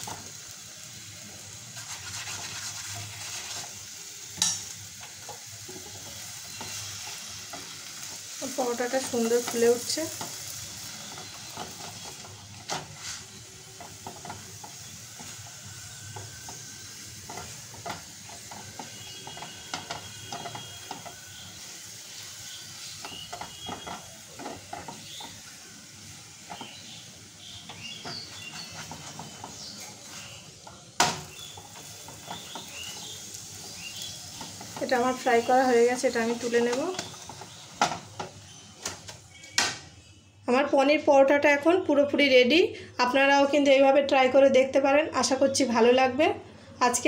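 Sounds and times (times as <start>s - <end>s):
flatbread sizzling in a pan: 0.0s - 40.2s
spatula pressing on bread: 22.7s - 25.5s, 26.4s - 35.0s.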